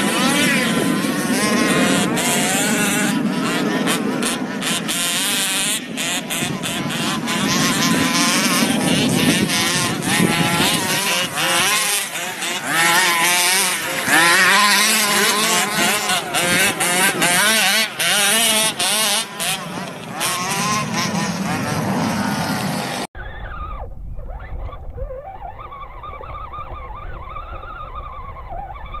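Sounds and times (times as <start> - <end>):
small two-stroke engines revving: 0.0 - 23.6.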